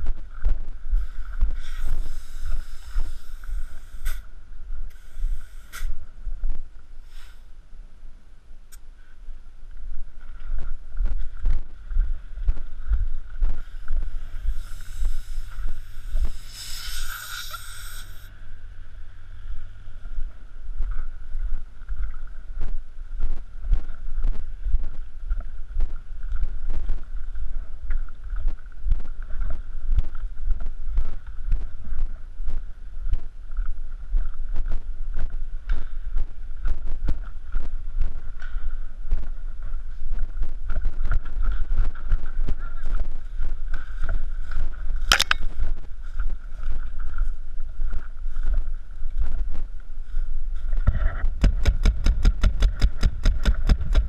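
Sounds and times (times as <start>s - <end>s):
hiss: 1.0s - 4.3s, 4.9s - 6.0s, 7.0s - 7.5s, 14.4s - 18.3s
footsteps and gear knocks: 51.1s - 54.0s.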